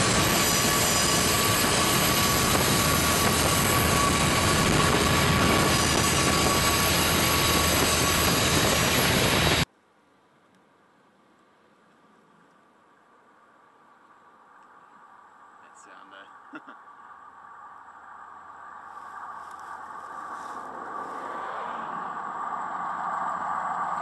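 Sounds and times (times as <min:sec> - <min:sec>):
freight train rumbling past: 0:00.0 - 0:09.7, 0:18.2 - 0:24.0.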